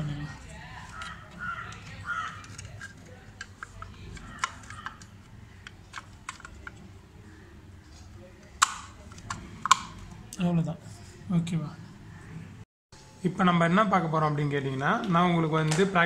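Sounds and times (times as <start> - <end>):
plastic cover clicks and scrapes: 0.9 - 6.8.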